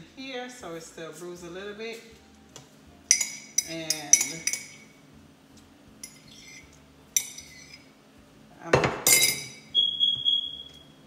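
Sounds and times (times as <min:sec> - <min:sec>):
glassware and dishes clinking: 0:03.1 - 0:04.9, 0:06.0 - 0:07.8, 0:08.7 - 0:09.7.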